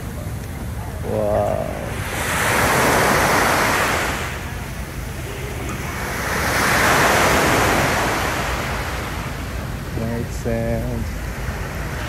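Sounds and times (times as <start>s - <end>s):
small waves breaking on beach: 0.0s - 12.0s.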